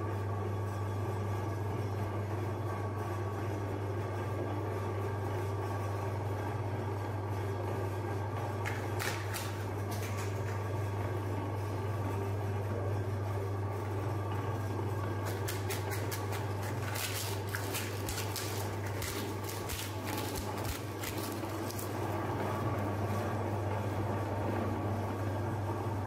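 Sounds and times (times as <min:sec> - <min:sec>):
meat grinder motor humming: 0:03.9 - 0:26.0
cones clattering and crunching: 0:08.7 - 0:10.6, 0:15.2 - 0:22.2.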